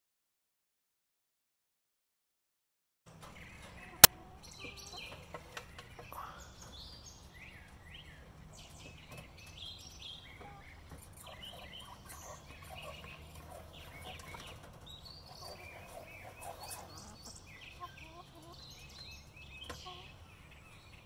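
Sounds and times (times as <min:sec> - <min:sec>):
small birds chirping: 0:03.3 - 0:21.0
hens clucking softly: 0:10.4 - 0:20.2.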